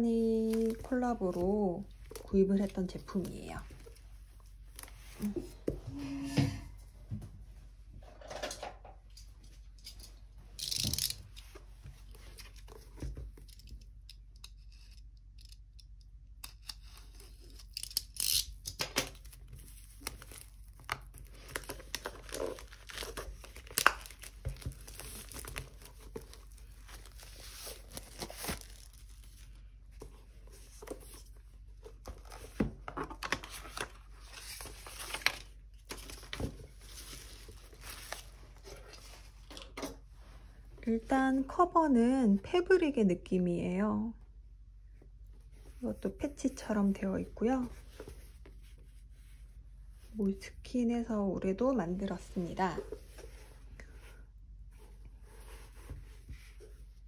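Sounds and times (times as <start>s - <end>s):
plastic wrap crinkling and tearing: 17.3s - 29.6s.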